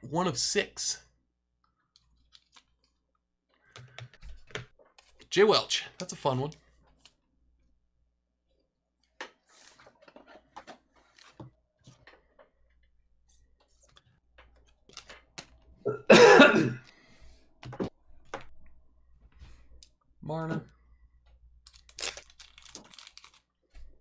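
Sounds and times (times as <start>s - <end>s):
trading cards clicking and rustling: 13.6s - 15.8s, 21.6s - 23.5s
person coughing: 15.9s - 16.9s.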